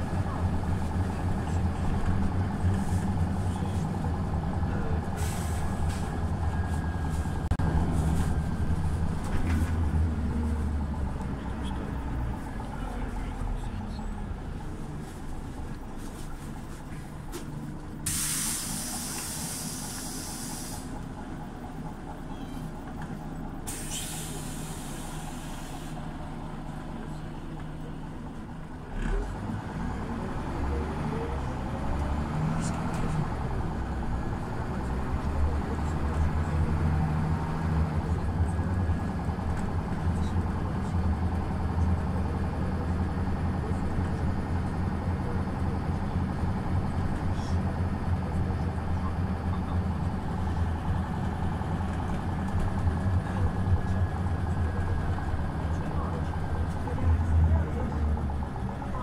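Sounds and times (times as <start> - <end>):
bus engine running: 0.0 - 59.0
compressed air hisses: 18.1 - 20.9, 23.7 - 25.9.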